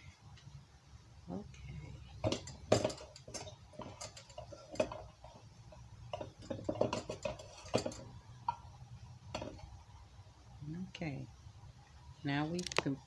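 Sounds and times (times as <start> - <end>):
scraping metal bowl: 1.8 - 8.7.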